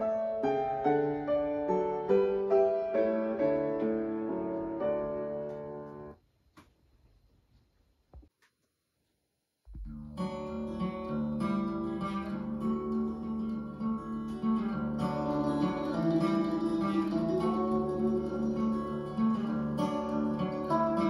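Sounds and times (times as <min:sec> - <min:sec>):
acoustic guitar through speakers: 0:09.7 - 0:21.0.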